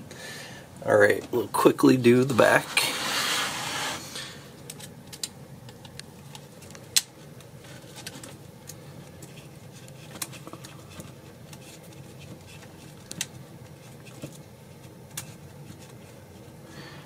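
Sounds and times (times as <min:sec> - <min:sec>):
plastic parts being handled: 0:04.6 - 0:16.6.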